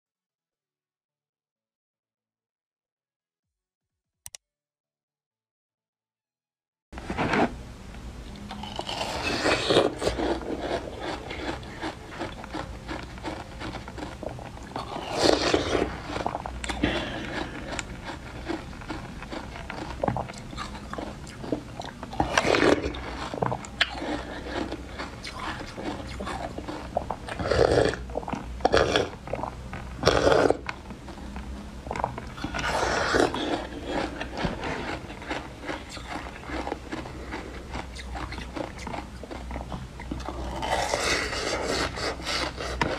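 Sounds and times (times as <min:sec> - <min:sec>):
chewing ice crackle: 0:08.3 - 0:42.9.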